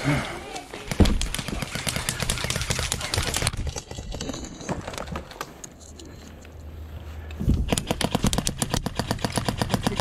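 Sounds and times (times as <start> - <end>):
airsoft gunfire: 0.9 - 3.5, 7.7 - 10.0.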